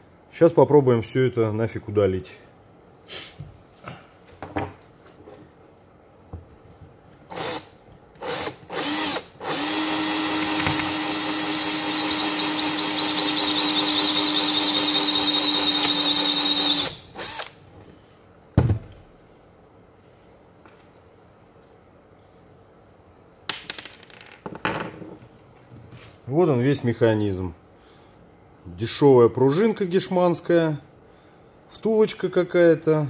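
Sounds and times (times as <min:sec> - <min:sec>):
cordless drill whining: 0:07.3 - 0:17.6.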